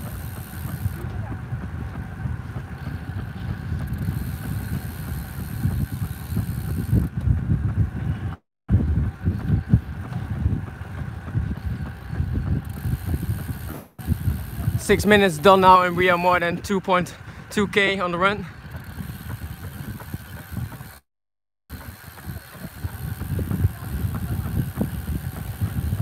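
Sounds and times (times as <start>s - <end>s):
wind buffeting microphone: 0.0s - 21.0s, 21.7s - 26.0s.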